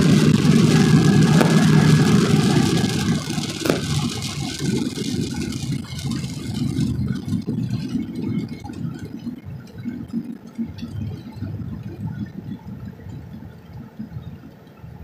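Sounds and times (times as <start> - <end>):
tyre noise on wet pavement: 0.0 - 7.4
engine and road rumble: 0.0 - 9.6.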